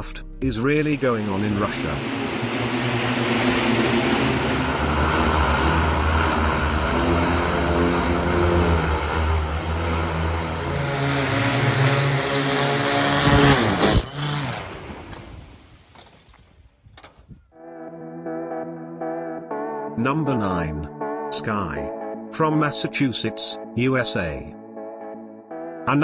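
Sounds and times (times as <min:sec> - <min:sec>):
propellers whirring: 0:00.0 - 0:16.2
rotor wash hiss: 0:01.0 - 0:07.4.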